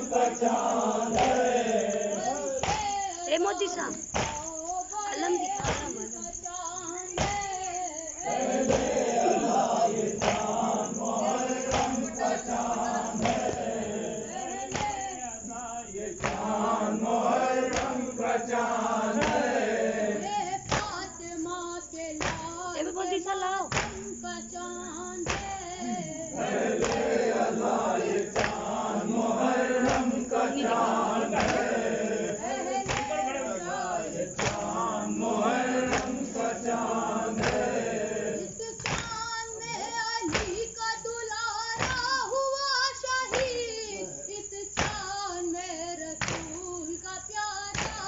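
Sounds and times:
men chanting in chorus: 0.0 - 21.2, 25.3 - 40.8, 43.0 - 45.0
chest-beating slaps: 0.1 - 1.8, 2.4 - 4.6, 5.2 - 6.2, 7.2 - 7.6, 8.3 - 15.2, 16.2 - 19.9, 20.6 - 21.1, 22.2 - 22.6, 23.7 - 24.2, 25.2 - 25.7, 26.4 - 38.2, 38.8 - 39.2, 40.3 - 40.7, 41.8 - 42.2, 44.8 - 45.1, 46.2 - 46.6, 47.8 - 48.0.

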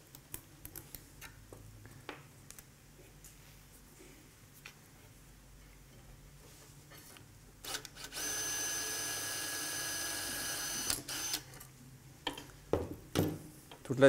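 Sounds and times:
drill clicks: 7.7 - 11.4
power drill whining: 8.0 - 11.4.

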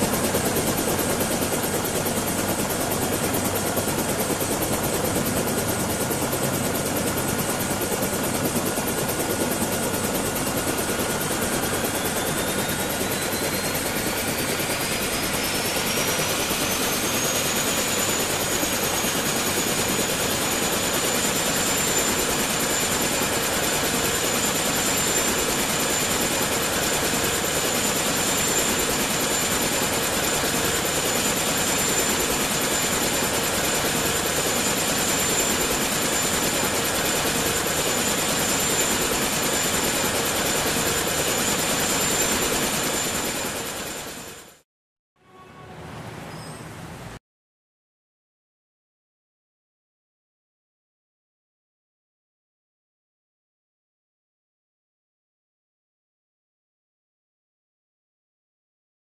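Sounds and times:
helicopter rotor and turbine: 0.0 - 44.6.

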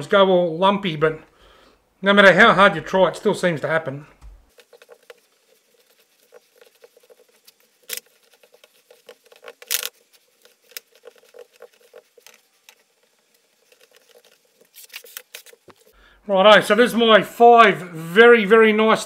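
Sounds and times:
breadcrumbs crackling and patting: 4.2 - 15.9.

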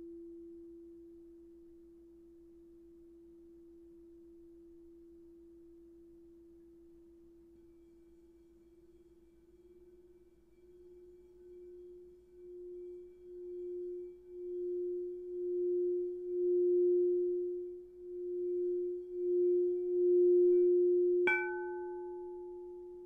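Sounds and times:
singing bowl rim tone: 0.0 - 23.0
singing bowl struck: 21.2 - 23.0.

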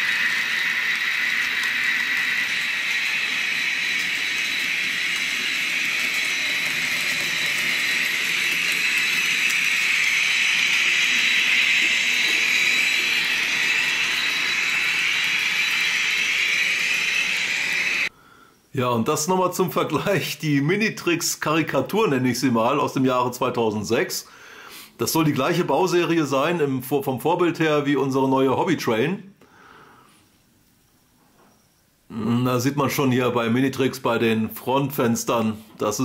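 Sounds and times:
model locomotive whine: 0.0 - 18.2.

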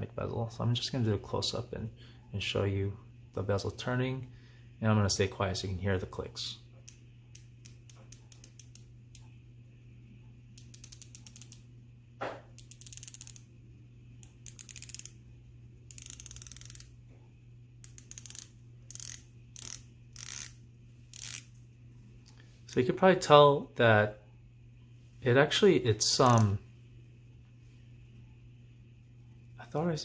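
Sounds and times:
watch bezel ratcheting clicks: 6.8 - 9.3, 10.6 - 11.6, 12.6 - 13.5, 14.2 - 15.2, 15.9 - 17.0, 17.8 - 21.5, 26.2 - 26.5.

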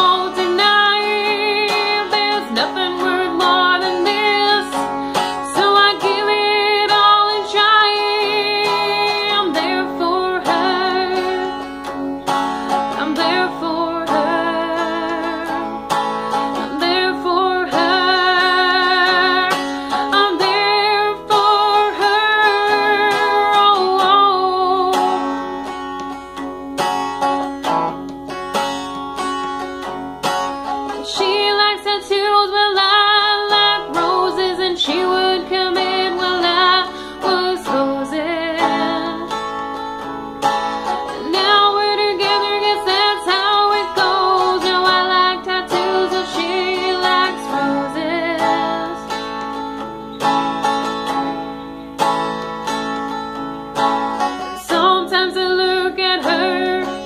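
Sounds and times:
woman singing: 0.0 - 25.8, 30.9 - 40.1, 40.8 - 50.1, 54.2 - 57.0
electric guitar strumming chords: 0.0 - 57.0.

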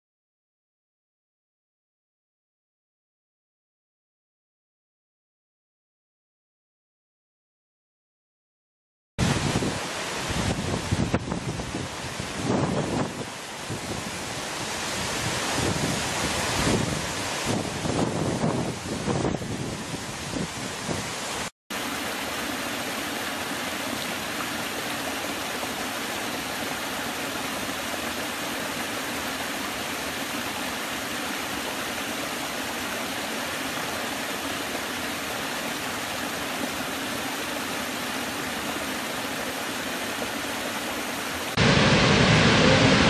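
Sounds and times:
gusty wind: 9.2 - 21.5, 41.6 - 43.0
large waterfall rushing: 9.2 - 43.0
water cascading over rocks: 9.2 - 43.0.

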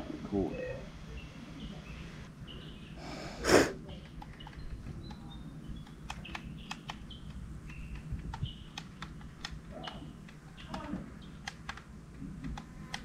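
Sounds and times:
child sniffing: 3.0 - 3.8
light clicks: 4.0 - 13.0.

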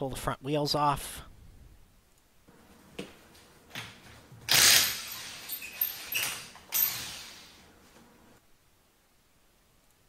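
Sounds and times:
wrench mechanical rattling: 4.5 - 7.2.

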